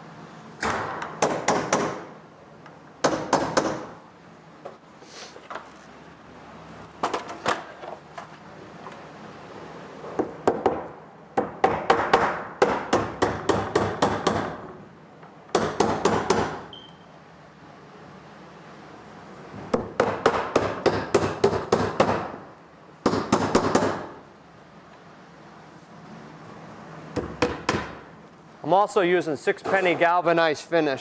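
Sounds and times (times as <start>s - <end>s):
hammer driving nails into wood: 0.6s - 2.1s, 3.0s - 4.0s, 10.4s - 14.6s, 15.5s - 16.6s, 19.7s - 22.4s, 23.0s - 24.2s.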